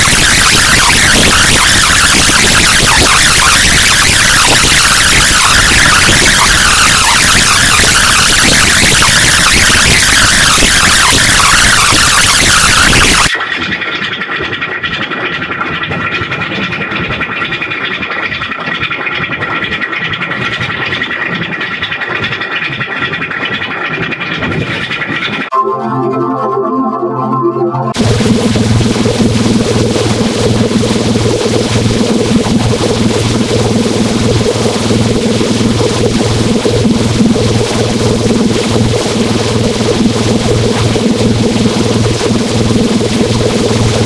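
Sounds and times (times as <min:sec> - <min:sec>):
steady high tones: 0:00.0 - 0:13.3, 0:25.5 - 0:35.7
distorted fluttering noise: 0:00.0 - 0:25.5, 0:27.9 - 0:44.0.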